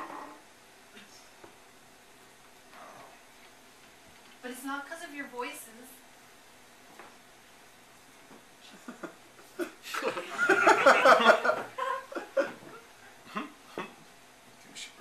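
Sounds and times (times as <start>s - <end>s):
audience laughing: 9.9s - 12.6s.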